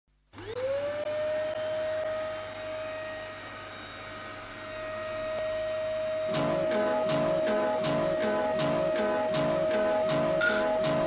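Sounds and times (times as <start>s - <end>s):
motor whine: 0.4s - 11.0s
low hum: 6.2s - 11.0s.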